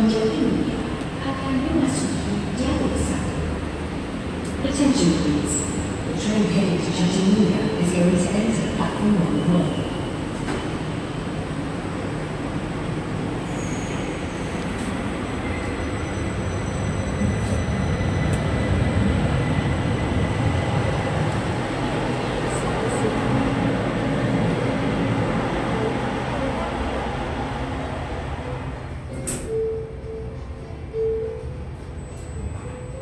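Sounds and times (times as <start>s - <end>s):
light rail train rumbling: 0.0s - 33.0s.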